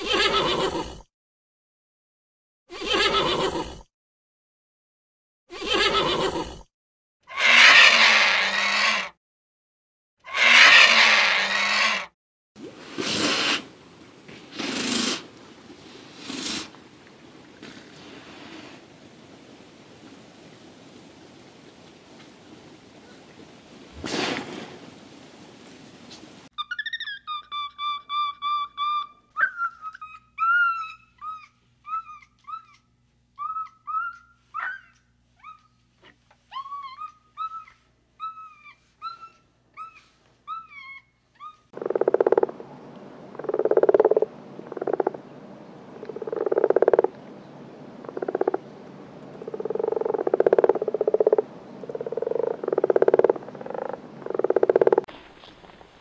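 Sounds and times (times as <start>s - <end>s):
chimpanzees squeaky calls: 10.3s - 12.1s, 26.6s - 35.8s, 36.5s - 41.7s
frog croaking loudly: 41.8s - 42.6s, 43.3s - 45.2s, 46.0s - 47.1s, 48.0s - 48.6s, 49.4s - 55.1s.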